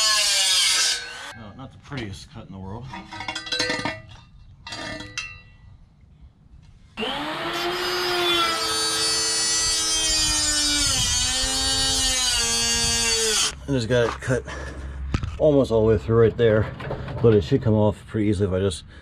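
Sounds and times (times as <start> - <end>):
power tool whining: 7.0 - 13.6.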